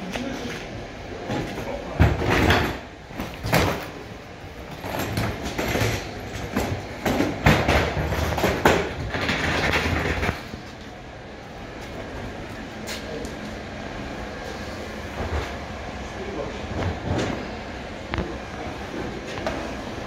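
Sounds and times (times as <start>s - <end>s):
bin wheels rumbling on concrete: 4.5s - 10.8s.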